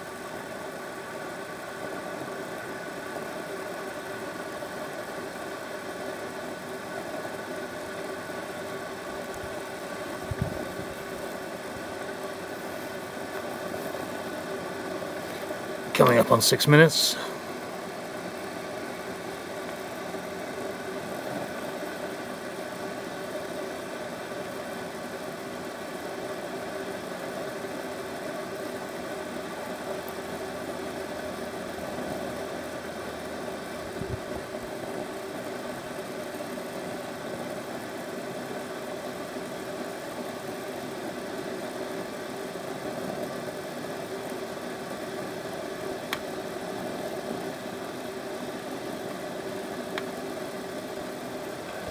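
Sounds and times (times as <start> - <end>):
faint click: 46.1 - 46.3.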